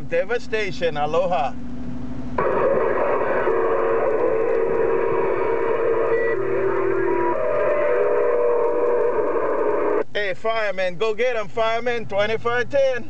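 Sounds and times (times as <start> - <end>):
heterodyne whistling tones: 2.4 - 10.0
radio static hiss: 2.4 - 10.6.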